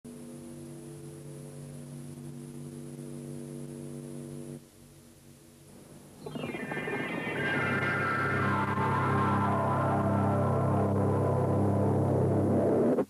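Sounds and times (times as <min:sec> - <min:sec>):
electrical mains hum: 0:00.1 - 0:13.0
music: 0:06.2 - 0:13.0.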